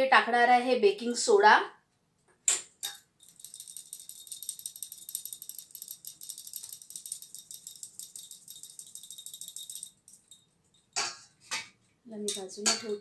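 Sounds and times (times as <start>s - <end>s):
sieve rattling over bowl: 2.8s - 10.4s.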